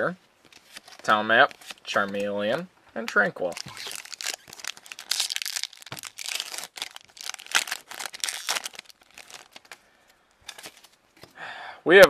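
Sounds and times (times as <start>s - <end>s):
foil wrapper crinkling and tearing: 3.1s - 9.8s.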